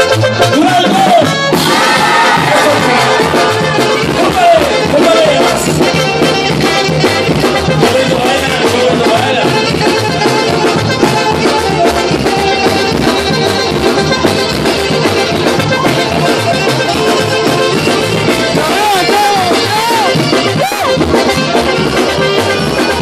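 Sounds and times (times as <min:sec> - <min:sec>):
banda dance music: 0:00.0 - 0:23.0.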